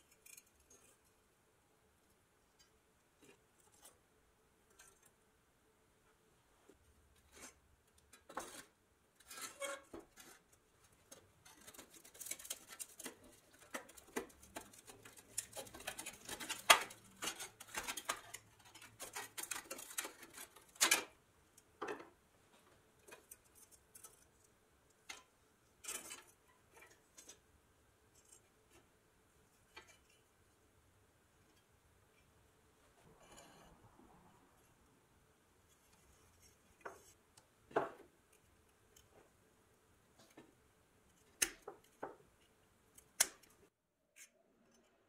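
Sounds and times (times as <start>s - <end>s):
metal toy clicking and scraping: 0.0s - 1.2s, 7.3s - 21.7s, 23.0s - 27.4s.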